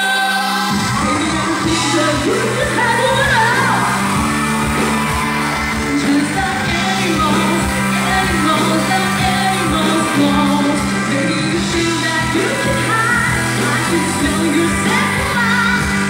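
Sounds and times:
electric guitar: 0:00.0 - 0:16.0
woman singing pop-rock song: 0:00.0 - 0:16.0
bass guitar: 0:00.6 - 0:16.0
drum beat: 0:00.9 - 0:10.6.

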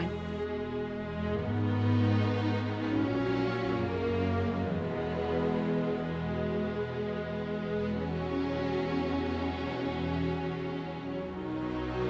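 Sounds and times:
slow held chords music: 0:00.0 - 0:12.0.

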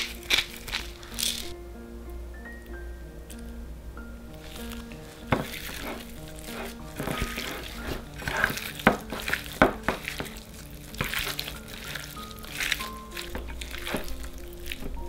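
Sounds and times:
wet squelches of kneaded meat: 0:04.4 - 0:15.0.

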